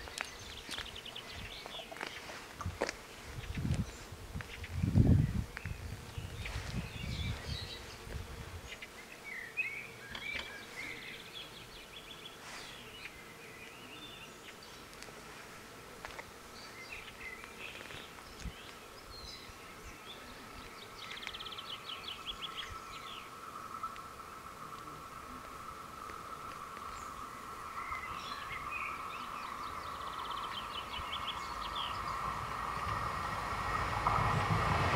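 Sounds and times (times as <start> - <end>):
songbirds chirping and twittering: 0.0 - 34.9
low rumble: 30.9 - 34.9.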